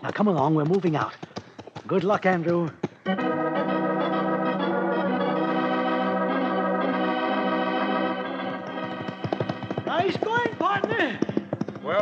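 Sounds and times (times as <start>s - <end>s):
organ chords: 3.0s - 11.6s.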